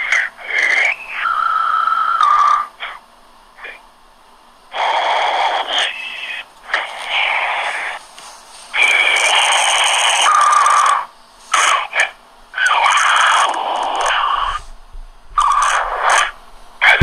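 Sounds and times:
harsh wheezing breath sounds: 4.7s - 14.8s.

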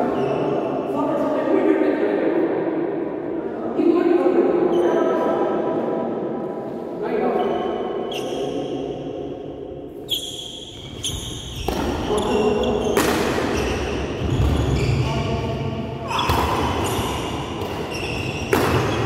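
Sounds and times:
rackets hitting shuttlecock: 11.5s - 14.7s, 16.1s - 19.0s.

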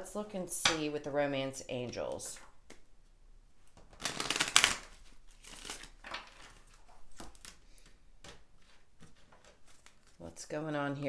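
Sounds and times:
cards riffle shuffled: 3.8s - 10.1s.

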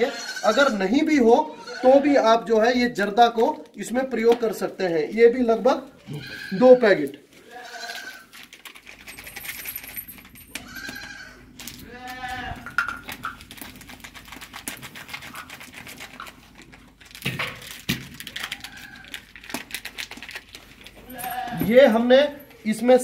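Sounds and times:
livestock bleating: 0.0s - 2.3s, 6.0s - 8.3s, 10.6s - 12.7s, 21.1s - 21.7s.

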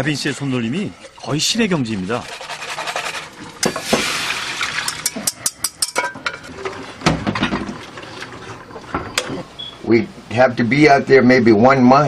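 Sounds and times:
liquid pouring into saucepan: 0.0s - 9.2s.

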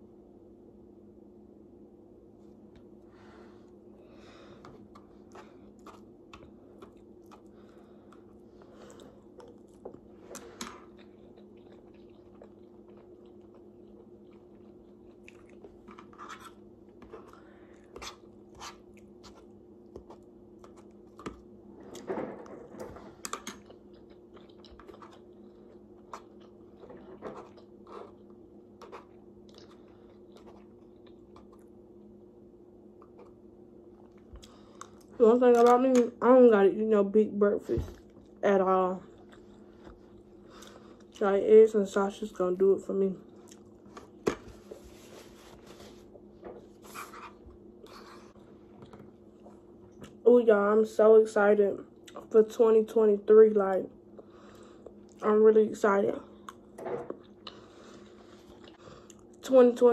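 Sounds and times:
steady low hum: 0.0s - 59.9s
person chewing food: 4.6s - 22.1s, 23.1s - 32.1s, 32.9s - 35.2s, 39.0s - 41.2s, 43.3s - 50.2s, 56.3s - 59.4s.

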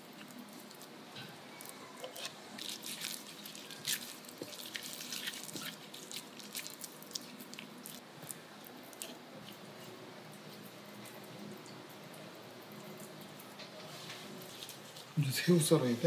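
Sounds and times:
wet squelching of minced meat: 0.0s - 11.3s, 14.0s - 15.2s.

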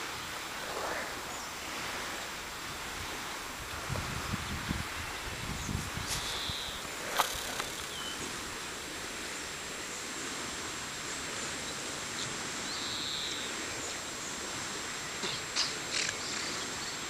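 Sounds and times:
outdoor ambient hiss: 0.0s - 17.0s
bird chirp: 5.5s - 6.8s, 7.4s - 8.3s.

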